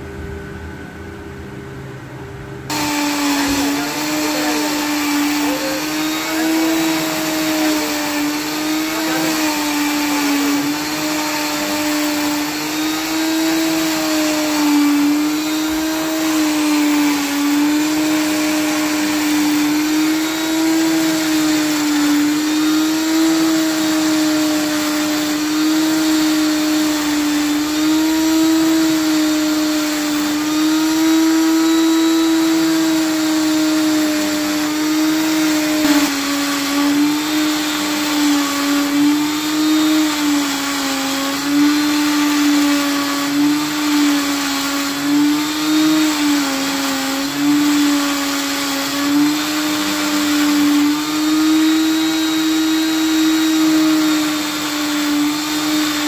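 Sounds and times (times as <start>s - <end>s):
hiss of metal grinding: 2.7s - 13.6s
electric grinder humming: 2.7s - 56.0s.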